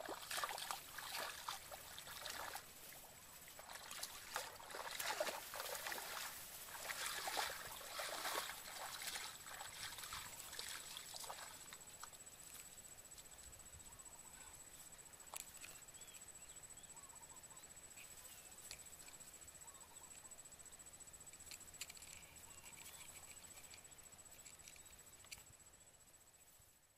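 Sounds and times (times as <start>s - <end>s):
footsteps splashing through water: 0.0s - 2.6s, 3.6s - 11.6s
faint chirps: 0.2s - 26.8s.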